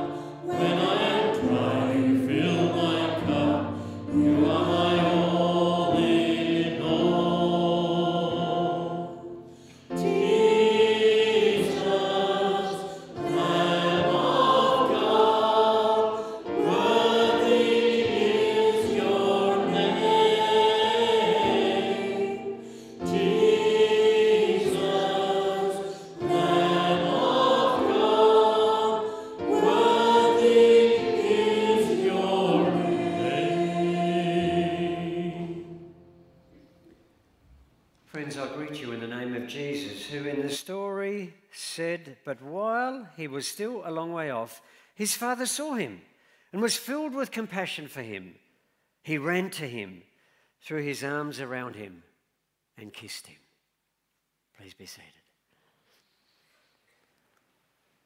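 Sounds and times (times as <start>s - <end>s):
group singing worship song: 0.0s - 36.8s.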